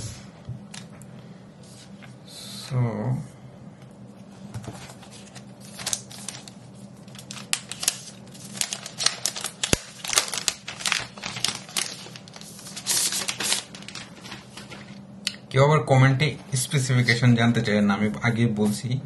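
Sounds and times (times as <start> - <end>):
plastic wrap crinkling: 5.0 - 15.0.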